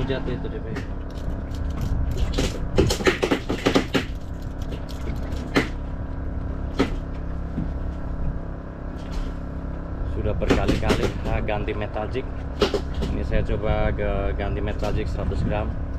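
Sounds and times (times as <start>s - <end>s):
engine hum: 0.0s - 15.9s
sharp clicks and knocks: 0.7s - 5.8s, 10.4s - 11.6s.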